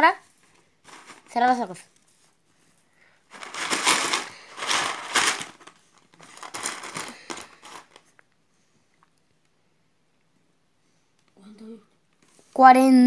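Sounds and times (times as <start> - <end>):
plastic chips rattling in a box: 3.3 - 8.0.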